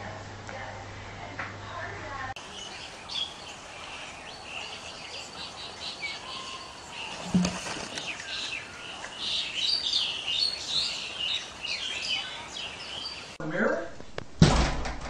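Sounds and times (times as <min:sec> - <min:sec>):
birds chirping: 0:02.4 - 0:13.5.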